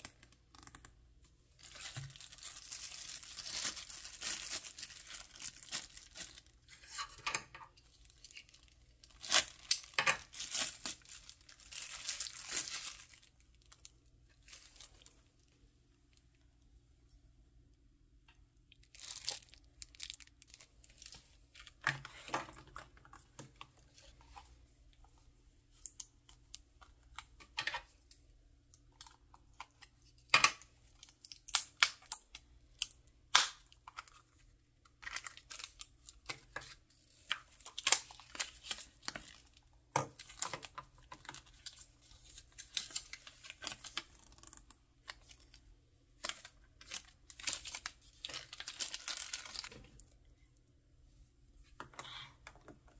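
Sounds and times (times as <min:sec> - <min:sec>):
crinkling and rustling: 0:00.0 - 0:16.4, 0:18.7 - 0:28.2, 0:28.8 - 0:50.2.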